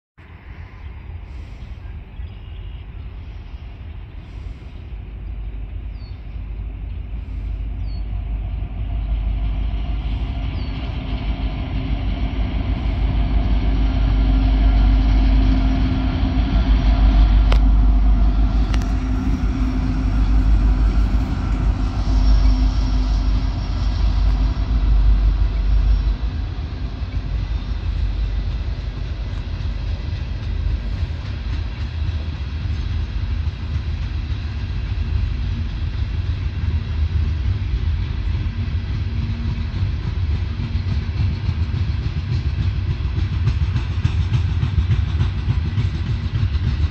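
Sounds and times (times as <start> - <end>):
diesel locomotive engines droning: 0.2 - 46.9
train cars rumbling on rails: 0.2 - 46.9.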